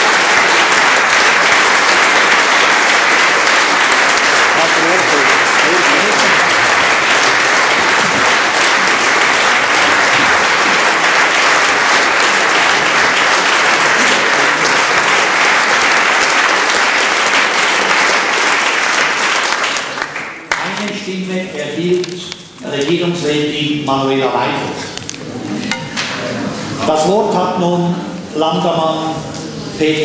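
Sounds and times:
crowd applause: 0.0 - 21.1.

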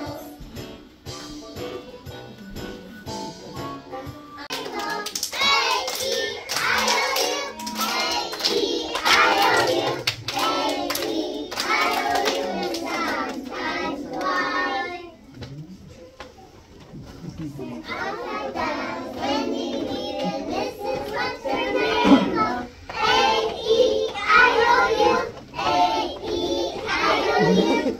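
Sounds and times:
children singing: 0.0 - 0.4, 4.1 - 15.2, 17.7 - 27.9
hand claps: 4.5 - 14.5.

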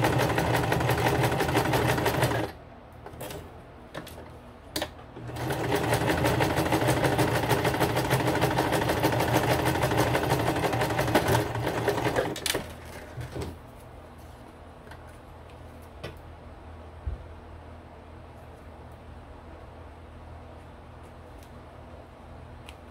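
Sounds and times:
sewing machine stitching: 0.0 - 2.6, 5.2 - 13.1.

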